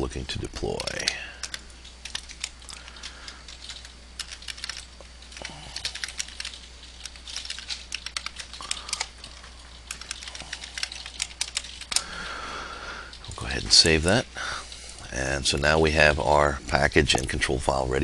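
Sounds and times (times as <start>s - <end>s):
computer keyboard typing: 0.6s - 12.3s.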